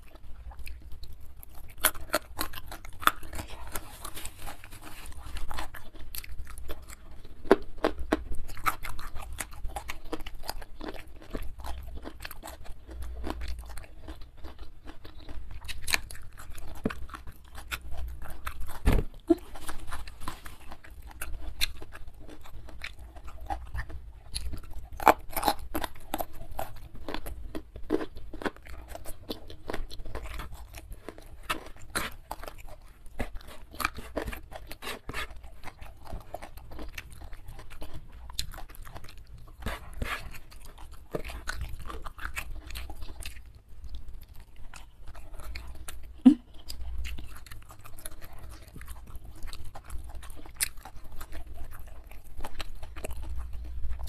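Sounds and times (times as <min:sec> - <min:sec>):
chewing and crunching: 0:00.0 - 0:54.0
wet mouth sounds: 0:14.9 - 0:27.2, 0:44.8 - 0:54.0.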